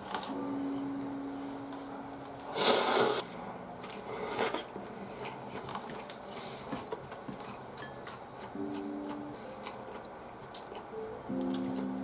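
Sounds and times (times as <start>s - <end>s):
soft chewing: 2.4s - 12.0s.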